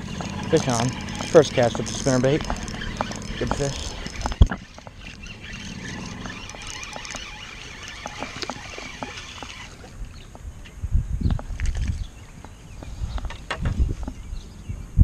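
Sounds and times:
fishing reel clicks and ticks: 0:00.0 - 0:09.8
low hum: 0:00.0 - 0:10.2.

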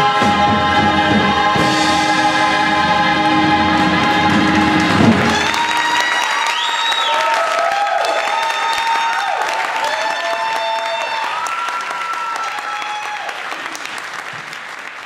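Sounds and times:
audience applauding: 0:03.8 - 0:15.0
audience cheering: 0:04.3 - 0:15.0.

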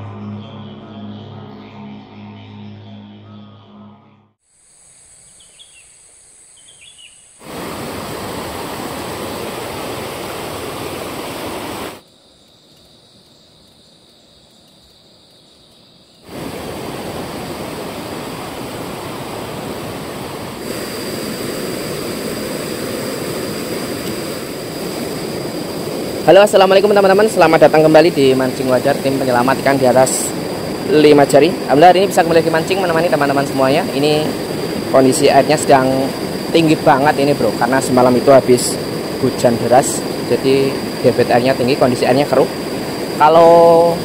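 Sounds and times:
steady high whine: 0:00.0 - 0:12.2, 0:16.1 - 0:44.0
bird chirps: 0:05.2 - 0:07.4
river rushing: 0:07.4 - 0:12.0, 0:16.2 - 0:44.0.

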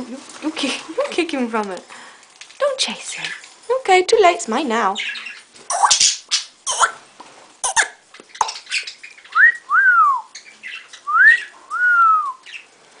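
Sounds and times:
budgie chatter: 0:06.7 - 0:07.0, 0:07.6 - 0:08.6.

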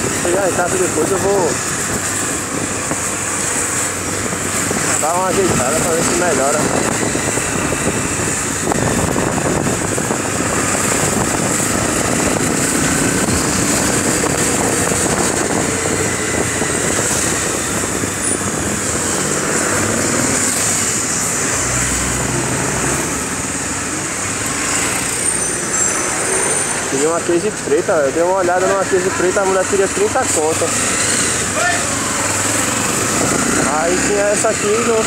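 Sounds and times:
motorcycle engine running: 0:00.0 - 0:21.5
air rushing over microphone: 0:00.0 - 0:23.5.

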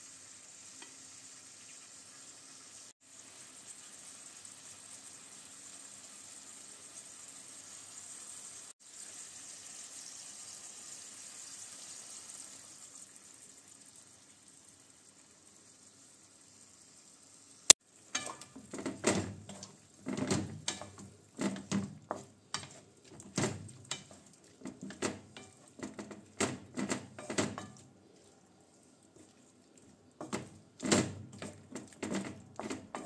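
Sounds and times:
wooden spatula scraping a pan: 0:18.1 - 0:33.0.

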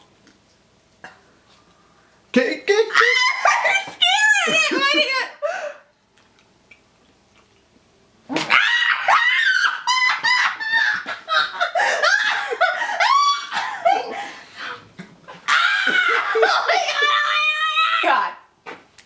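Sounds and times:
people laughing: 0:09.8 - 0:14.4
high-pitched screams and squeals: 0:15.4 - 0:18.2.

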